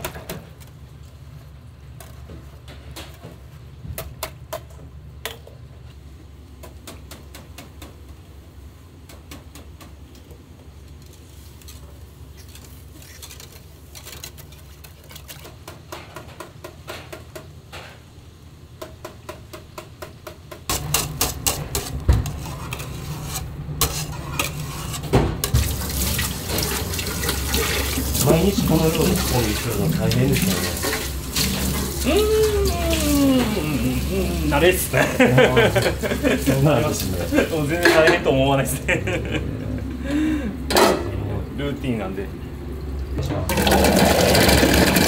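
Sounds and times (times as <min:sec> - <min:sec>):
kitchen equipment hum: 0:00.0 - 0:45.0
utensils and dishes clattering: 0:20.7 - 0:34.1, 0:35.0 - 0:38.4
tap water running: 0:24.4 - 0:38.2, 0:43.0 - 0:45.0.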